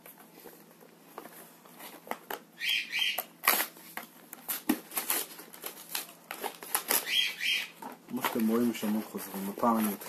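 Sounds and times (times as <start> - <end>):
cardboard box tearing: 3.4 - 3.8, 4.4 - 7.6.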